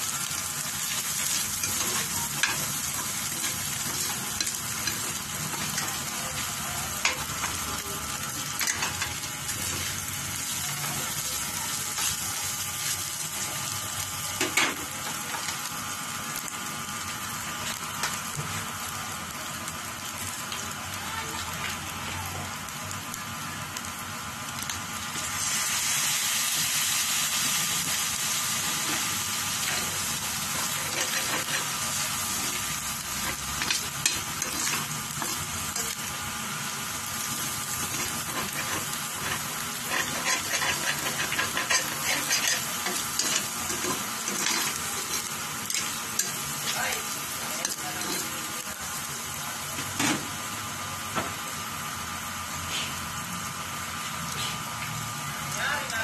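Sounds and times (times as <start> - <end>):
meat sizzling in skillet: 0.0 - 56.0
metal spoon scraping pan: 37.8 - 46.3.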